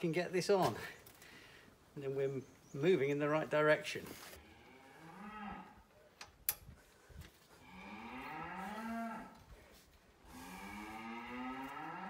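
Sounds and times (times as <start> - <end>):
cow mooing: 4.4 - 5.8, 7.6 - 9.4, 10.3 - 12.0.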